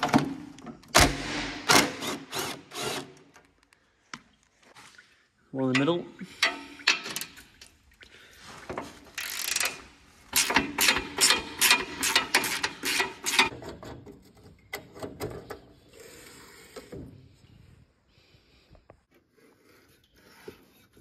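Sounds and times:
ratchet wrench clicking: 0:09.2 - 0:09.8.

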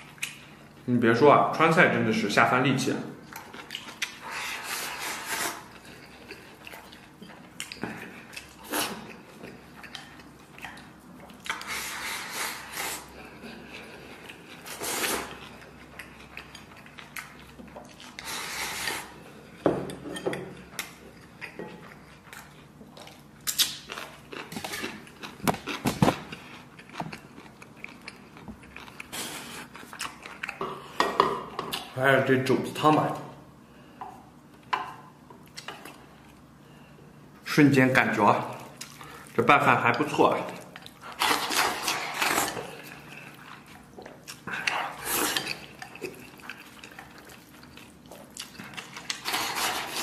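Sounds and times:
person biting and chewing: 0:20.8 - 0:30.6, 0:40.8 - 0:50.0.

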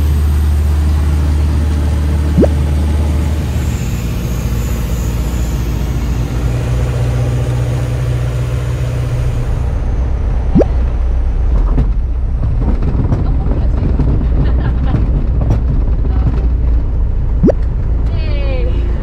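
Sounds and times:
light aircraft engine drone: 0:00.0 - 0:12.1.

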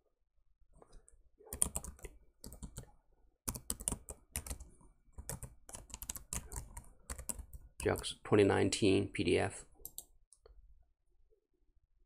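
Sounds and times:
typing on a keyboard: 0:01.5 - 0:02.9, 0:03.5 - 0:08.1.

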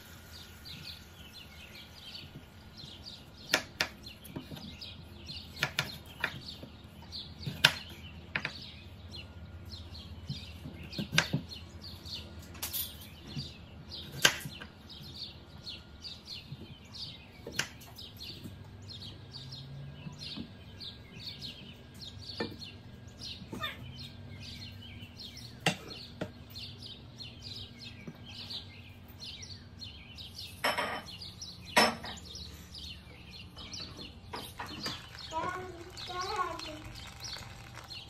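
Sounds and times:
small bird chirping: 0:00.0 - 0:38.0
loud clatters: 0:34.4 - 0:38.0.

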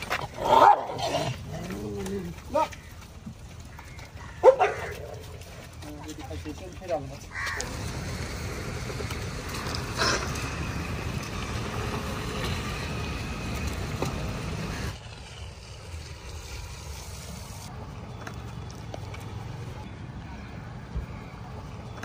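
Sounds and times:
low traffic rumble: 0:00.0 - 0:22.0.

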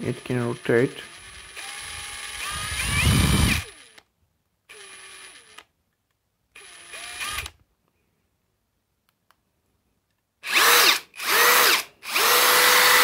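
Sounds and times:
impact driver motor whine: 0:00.3 - 0:04.1, 0:04.7 - 0:05.7, 0:06.6 - 0:07.6, 0:10.5 - 0:13.0.

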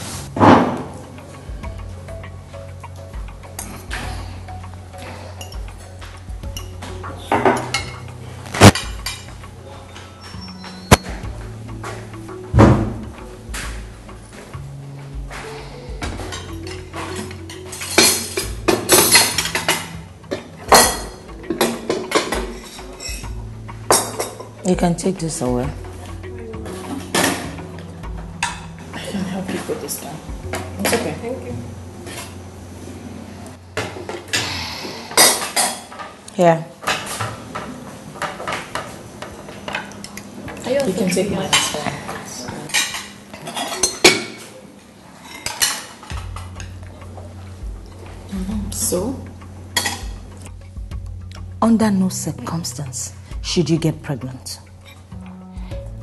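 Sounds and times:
dishes and cutlery clinking: 0:00.3 - 0:32.4, 0:33.7 - 0:51.5, 0:54.4 - 0:55.2.

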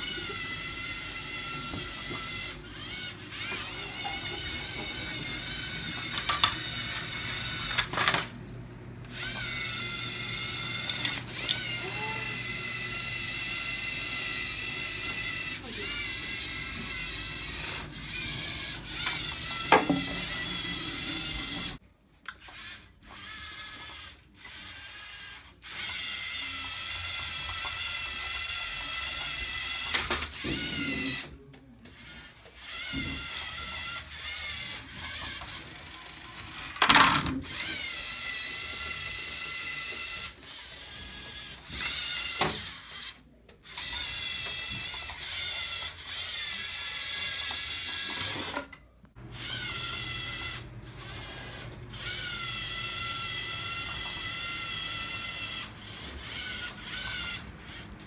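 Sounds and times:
robot motors and gears whining: 0:00.0 - 0:08.4, 0:09.1 - 0:21.8, 0:22.4 - 0:48.6, 0:49.3 - 0:58.0.

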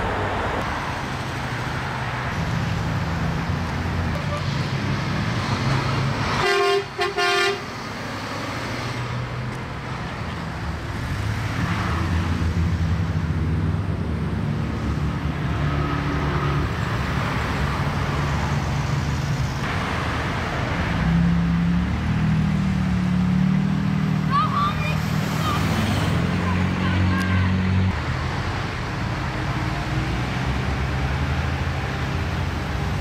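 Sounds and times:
passing road traffic: 0:00.0 - 0:33.0
vehicle horn honking: 0:06.4 - 0:07.6.

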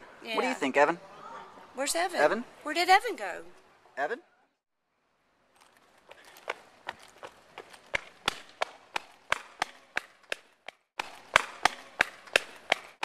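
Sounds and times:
quick footsteps: 0:05.6 - 0:13.0.

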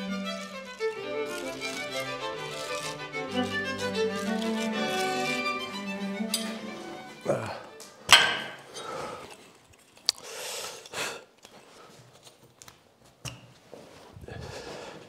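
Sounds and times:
scraping and handling noises: 0:00.2 - 0:07.0, 0:08.5 - 0:14.7
metallic knock of scaffold: 0:08.1 - 0:08.7.

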